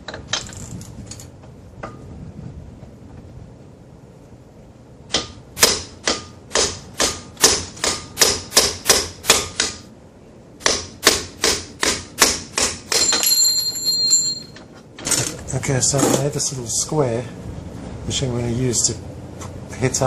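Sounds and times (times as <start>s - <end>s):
hammer striking steel: 5.1s - 9.8s.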